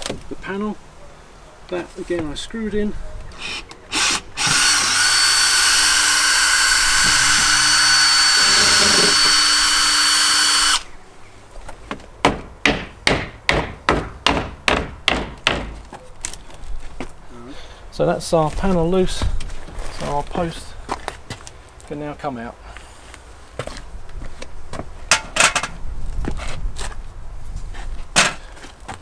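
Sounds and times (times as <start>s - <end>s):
cordless drill running: 3.9s - 10.8s
sharp knocks: 12.2s - 15.8s.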